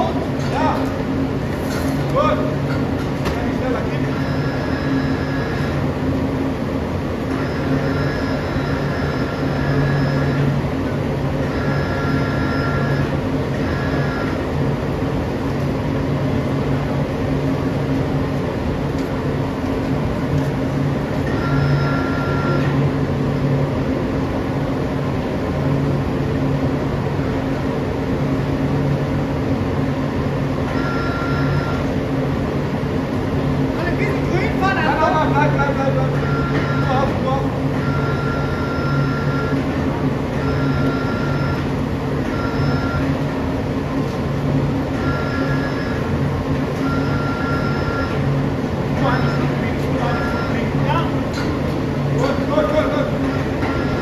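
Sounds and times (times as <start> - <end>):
constant low hum: 0.0 - 54.0
furnace flames rumbling: 0.0 - 54.0.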